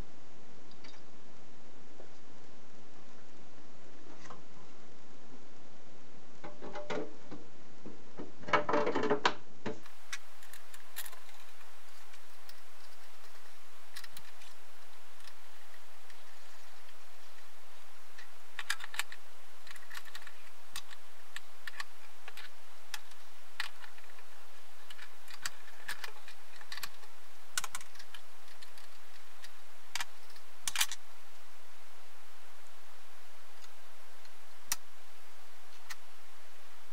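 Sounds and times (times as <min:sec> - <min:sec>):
small metal parts clicking: 0:18.2 - 0:24.2, 0:24.9 - 0:31.0.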